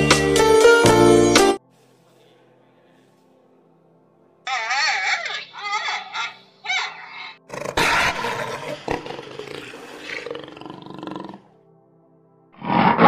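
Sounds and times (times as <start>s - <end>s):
big cat roaring: 7.1s - 11.5s, 12.6s - 13.0s.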